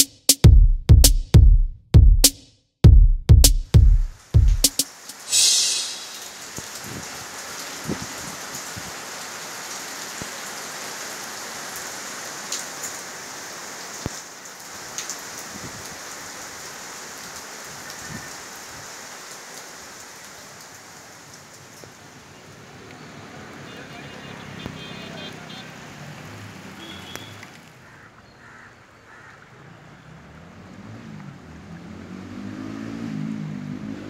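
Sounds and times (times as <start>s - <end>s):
steady rain falling: 4.0s - 34.0s
brief sharp hiss: 5.1s - 6.8s
raindrops ticking: 26.8s - 27.8s.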